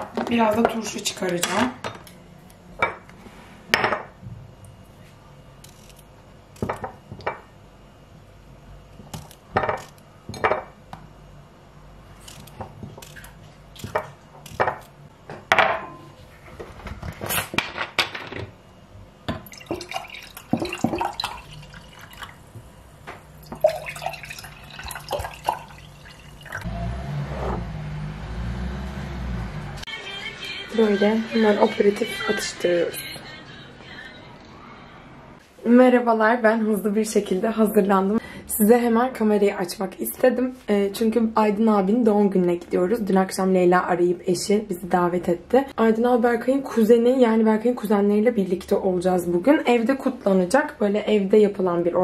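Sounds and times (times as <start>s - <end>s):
juice pouring into glasses: 19.5s - 22.5s, 23.4s - 26.7s.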